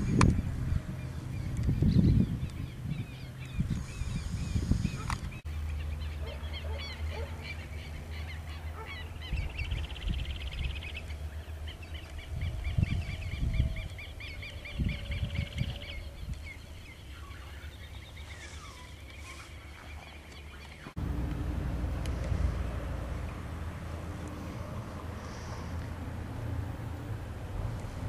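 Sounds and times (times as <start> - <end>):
wind buffeting microphone: 0.0 - 5.5, 8.8 - 28.0
birds chirping and trilling: 0.0 - 21.0.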